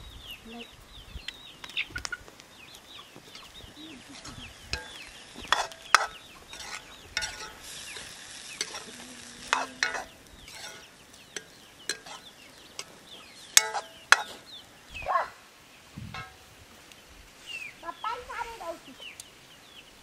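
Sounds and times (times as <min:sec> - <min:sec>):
vegetables sizzling: 0:01.5 - 0:20.0
ladle scraping iron pan: 0:04.1 - 0:14.5, 0:16.1 - 0:16.4
metal clinks against pan: 0:04.7 - 0:08.8, 0:09.5 - 0:12.2, 0:13.6 - 0:14.4.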